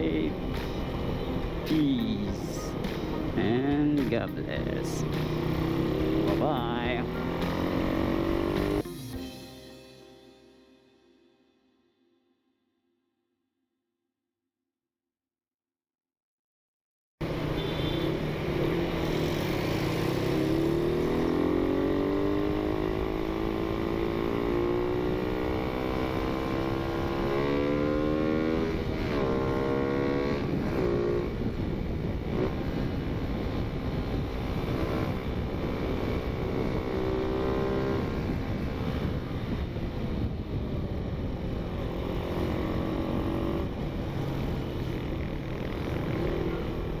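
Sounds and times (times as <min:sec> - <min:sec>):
motorcycle engine accelerating: 0:00.0 - 0:08.9, 0:17.2 - 0:47.0
wind rush on microphone: 0:30.2 - 0:47.0.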